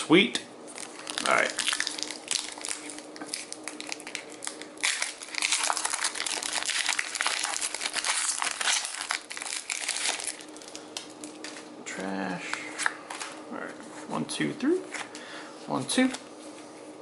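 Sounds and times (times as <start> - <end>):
foil wrapper crinkling: 0.7 - 11.7.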